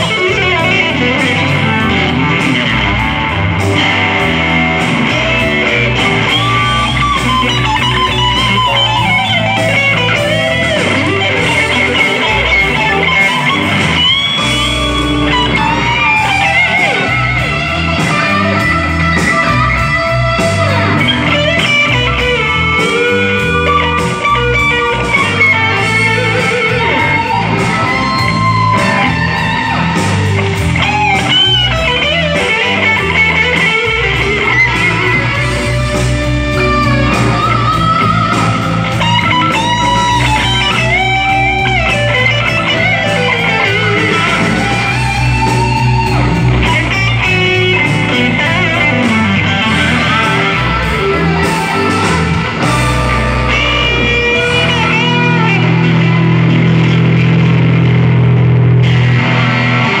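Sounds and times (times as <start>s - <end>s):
lead electric guitar: 0.0s - 60.0s
low bass line: 0.0s - 60.0s.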